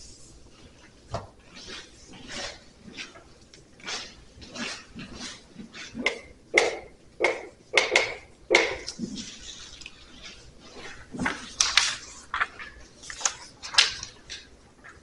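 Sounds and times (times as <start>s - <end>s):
paper sheets rustling: 9.0s - 15.0s.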